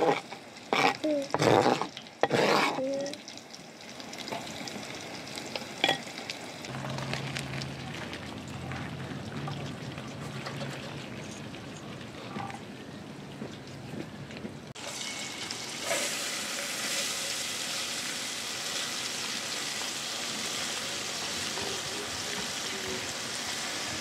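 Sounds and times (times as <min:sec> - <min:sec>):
knife scraping cutting board: 0:00.0 - 0:02.8
water draining through colander: 0:06.7 - 0:11.9.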